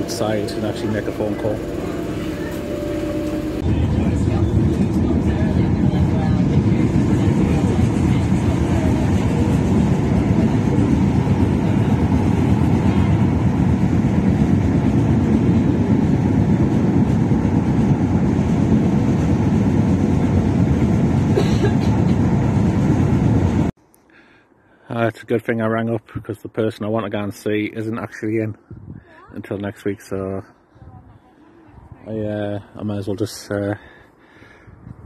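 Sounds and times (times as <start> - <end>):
train rumbling inside carriage: 0.0 - 23.7.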